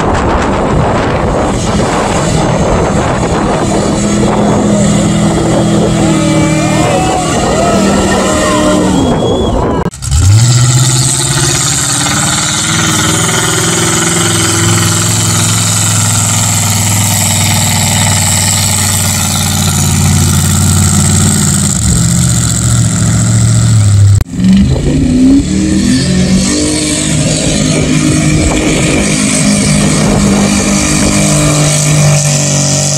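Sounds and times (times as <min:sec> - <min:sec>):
truck engine at high revs: 0:00.0 - 0:32.9
truck engine revving in bursts: 0:00.0 - 0:32.9.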